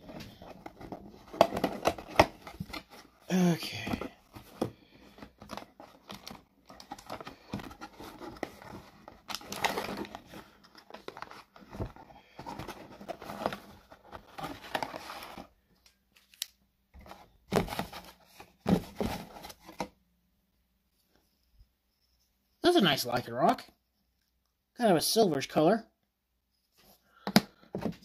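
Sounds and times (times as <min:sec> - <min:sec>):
cardboard box packaging rustling: 0:00.0 - 0:16.4, 0:17.0 - 0:20.0.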